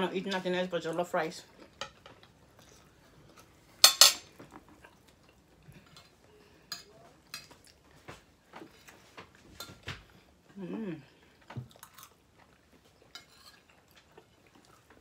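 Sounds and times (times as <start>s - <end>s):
spoons clinking on plates: 3.8s - 4.3s, 5.8s - 7.5s.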